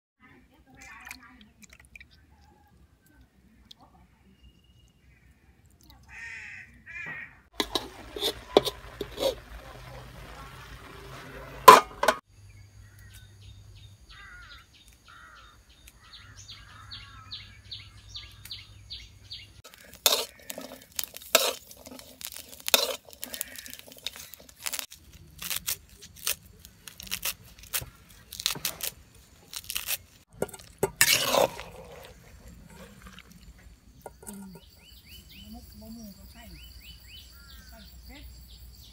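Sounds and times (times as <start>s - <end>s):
hands washing mushrooms in water: 7.6s - 12.2s, 19.6s - 34.6s.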